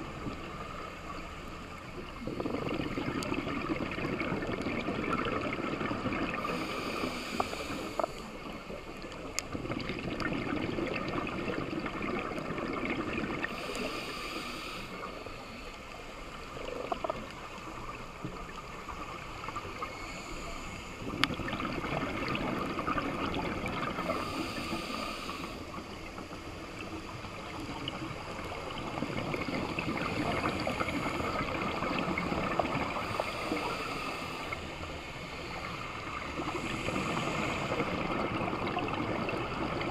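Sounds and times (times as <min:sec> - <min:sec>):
watery background: 0:00.0 - 0:39.9
scuba regulator inhalation hiss: 0:06.3 - 0:08.4, 0:13.4 - 0:15.8, 0:19.7 - 0:21.0, 0:23.9 - 0:26.0, 0:32.9 - 0:38.4
sharp clicks underwater: 0:21.1 - 0:22.5.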